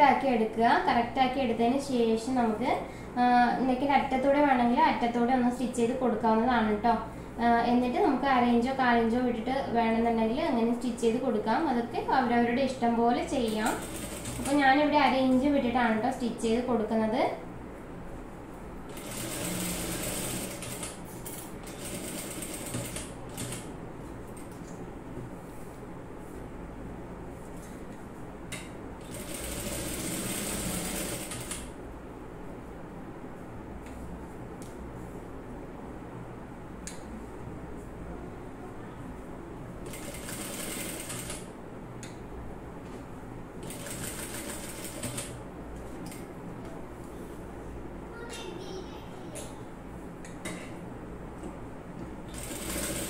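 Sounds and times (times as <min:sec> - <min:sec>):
electric sewing machine running: 0:13.6 - 0:14.6, 0:18.9 - 0:21.0, 0:21.6 - 0:23.7, 0:29.0 - 0:31.7, 0:39.9 - 0:41.4, 0:43.6 - 0:45.3, 0:52.3 - 0:53.0
sewing machine stitching: 0:18.9 - 0:21.0, 0:29.0 - 0:31.7, 0:52.3 - 0:53.0.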